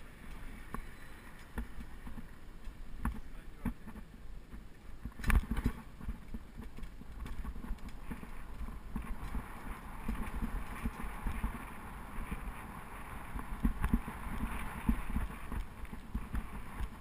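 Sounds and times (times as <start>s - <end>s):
bicycle rattling over road: 0.0s - 17.0s
steady rushing noise: 0.0s - 17.0s
wind on microphone: 5.0s - 17.0s.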